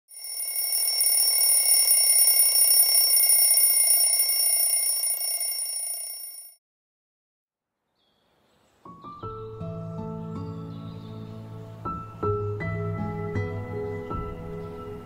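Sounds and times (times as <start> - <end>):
high-pitched ringing tones: 0.1 - 6.6.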